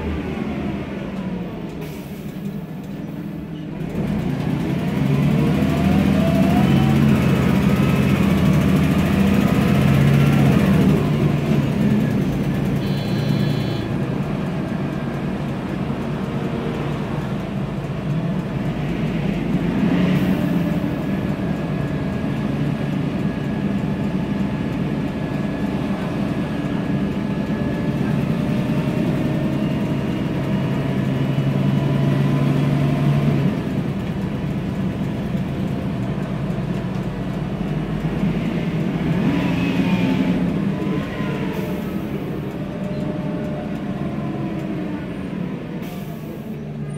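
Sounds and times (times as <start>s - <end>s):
bus engine pulling: 0.0s - 46.9s
gearbox whine: 12.8s - 13.9s.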